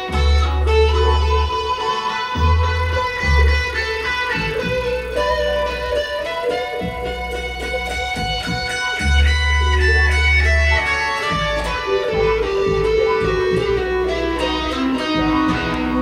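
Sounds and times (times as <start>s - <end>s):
deep bass tone: 0.0s - 16.0s
guitar melody through effects: 0.0s - 16.0s.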